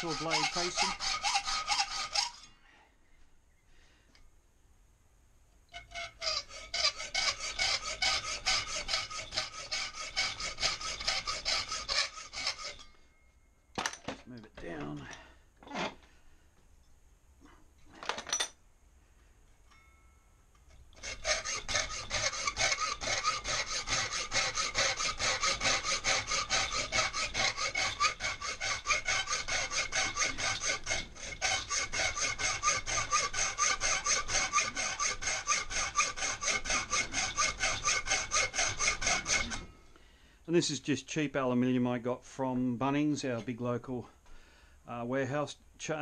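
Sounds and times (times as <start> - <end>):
hacksaw cutting sheet metal: 0.0 - 2.5, 5.7 - 13.0, 21.0 - 39.8.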